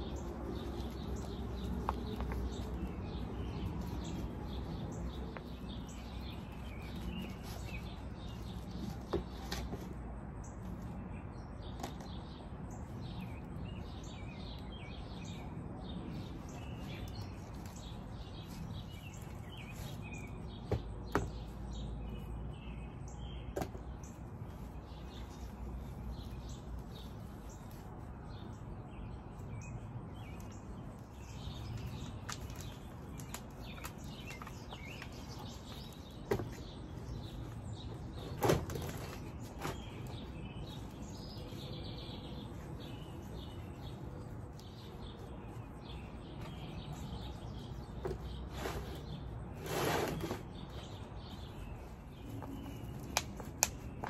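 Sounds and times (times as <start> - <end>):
plastic pots knocking and rustling: 0.0 - 11.0, 16.2 - 22.6, 23.4 - 27.8, 31.5 - 40.9, 46.4 - 51.6
birds chirping: 0.0 - 54.0.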